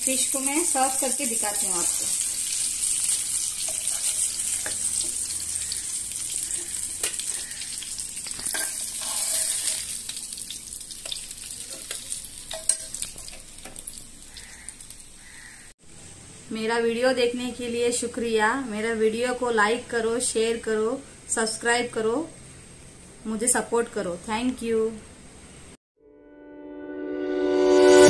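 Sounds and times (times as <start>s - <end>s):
fish sizzling in hot oil: 0.0s - 15.7s.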